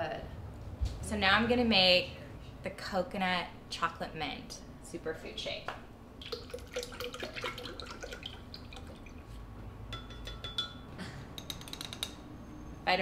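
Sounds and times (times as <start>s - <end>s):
liquid pouring into glass jar: 6.2s - 9.4s
metal spoon clinking on glass: 9.9s - 12.2s.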